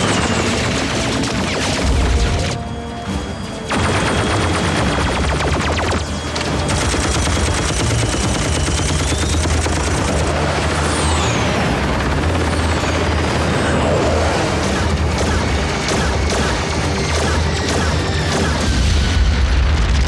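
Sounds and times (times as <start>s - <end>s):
laser blasts: 0.0s - 2.6s, 3.7s - 12.1s, 13.4s - 19.2s
dramatic music score: 0.0s - 20.0s
falling whistling zaps: 7.8s - 9.7s.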